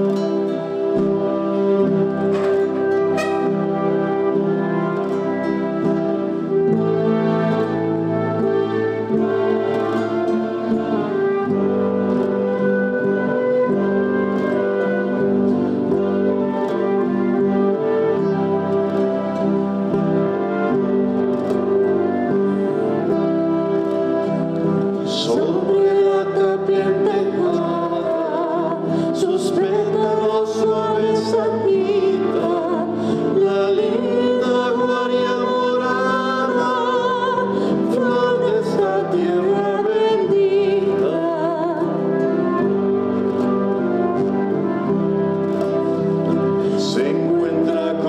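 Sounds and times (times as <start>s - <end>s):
acoustic guitar: 0.0s - 48.0s
flute: 0.0s - 48.0s
woman singing into a microphone: 25.1s - 42.6s.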